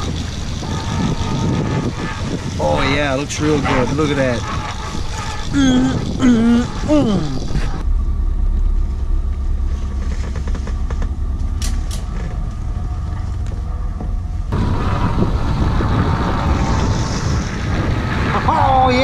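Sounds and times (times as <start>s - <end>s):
wind and water rushing along hull: 0.0s - 7.8s, 12.2s - 19.0s
boat engine rumbling: 0.0s - 19.0s.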